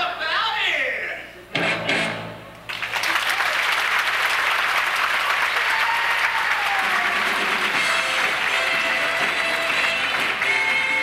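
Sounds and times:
theatre audience applauding: 2.7 - 11.0.

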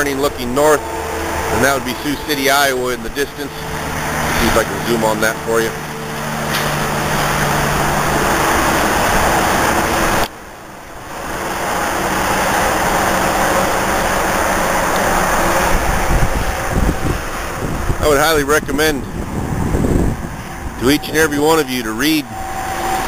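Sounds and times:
highway traffic rushing: 0.0 - 23.0
wind buffeting microphone: 11.0 - 23.0.

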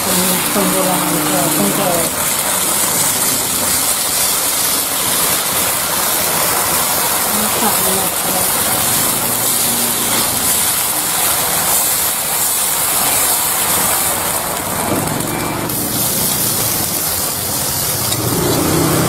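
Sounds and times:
batter sizzling: 0.0 - 19.0.

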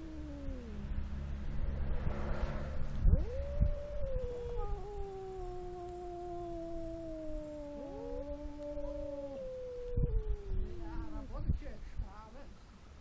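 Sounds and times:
cats yowling: 0.0 - 1.1, 3.1 - 11.3.

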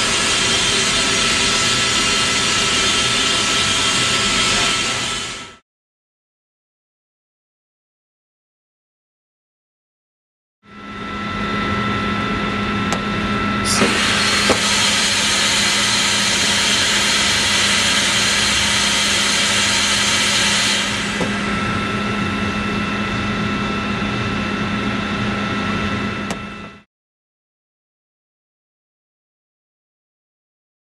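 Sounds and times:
mechanical hum: 0.0 - 5.6, 10.7 - 26.9
thin constant whistle: 0.0 - 5.6
compressed air rushing: 13.6 - 22.0.

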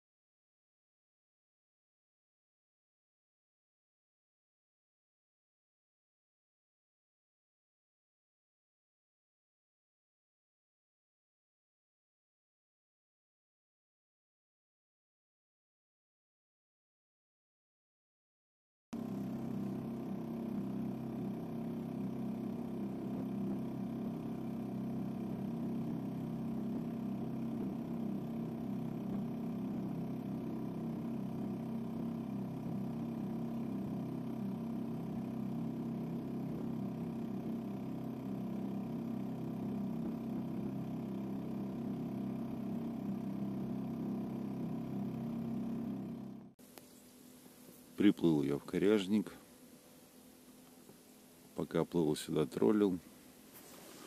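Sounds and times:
outboard motor running: 19.0 - 54.0.

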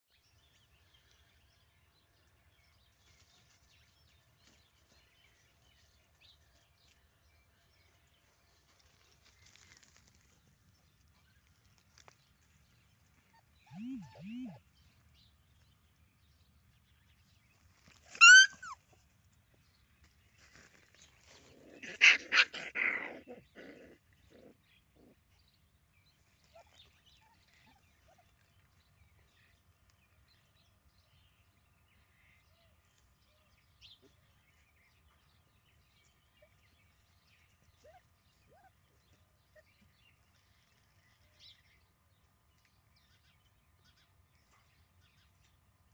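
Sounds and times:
puppies chirping faintly: 3.0 - 15.2, 17.5 - 19.3, 26.2 - 30.8, 32.9 - 45.9
faint bird chirps: 13.3 - 15.0
puppies yelping: 13.7 - 14.6, 18.2 - 18.8, 21.8 - 24.6.

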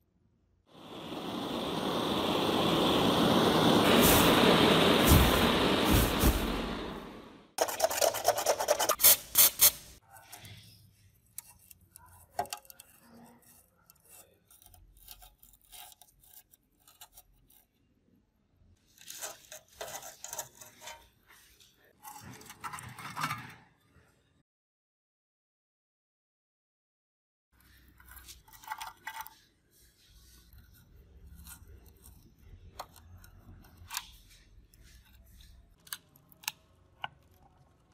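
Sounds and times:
metal scraper rasping on steel: 11.4 - 17.8.

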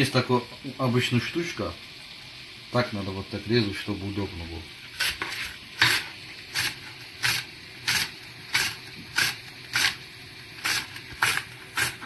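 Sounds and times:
cucumber rasping on grater: 5.0 - 10.0, 10.6 - 12.0.

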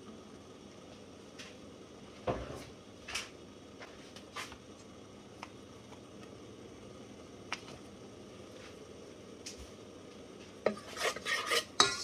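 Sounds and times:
spoon scraping metal bowl: 10.6 - 12.0.

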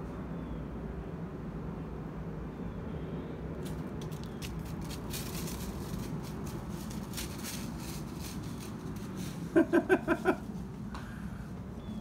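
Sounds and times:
low background hum: 0.0 - 12.0
dry leaves rustling: 3.6 - 10.9.

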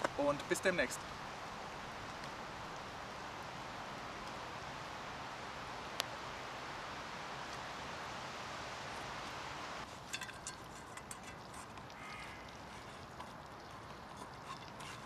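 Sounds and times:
steady outdoor hiss: 0.0 - 15.0
distant bird calls: 11.9 - 12.9
pan being wiped by hand: 14.1 - 15.0.

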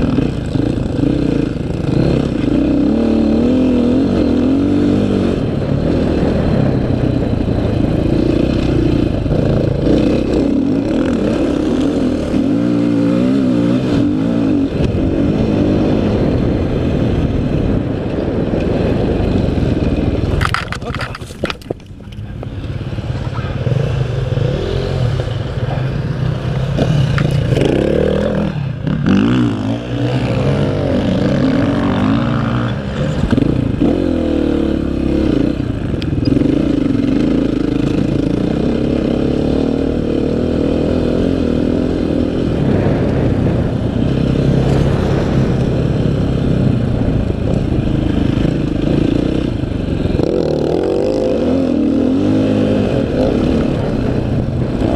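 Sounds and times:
dirt bike engine revving: 0.0 - 21.7, 23.0 - 54.9.

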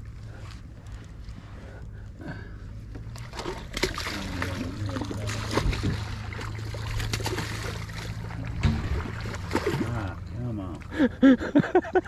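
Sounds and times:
low steady hum: 0.0 - 12.0
fish thrashing and splashing water: 3.1 - 10.3.

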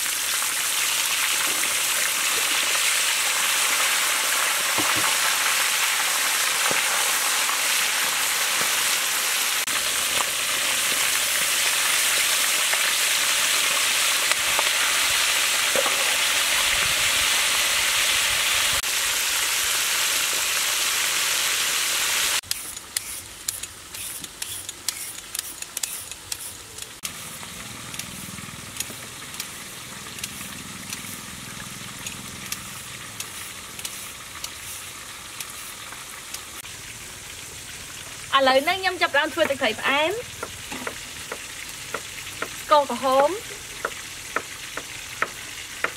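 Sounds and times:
oil crackles: 0.0 - 16.3, 22.4 - 39.4
fish deep-frying in oil sizzle: 0.0 - 45.9.

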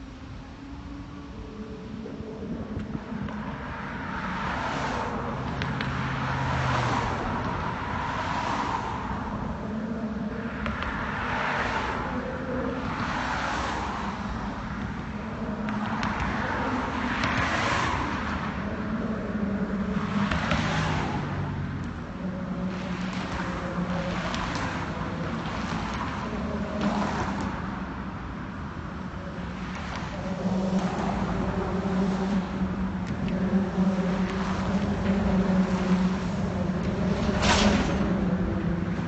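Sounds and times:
cars passing: 0.0 - 39.0
low engine hum: 0.0 - 39.0.

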